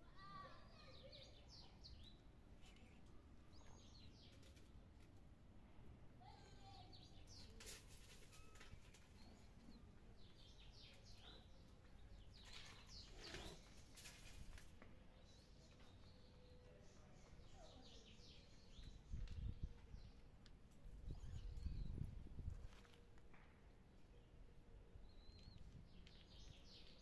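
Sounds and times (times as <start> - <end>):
faint birds chirping: 0.0 - 27.0.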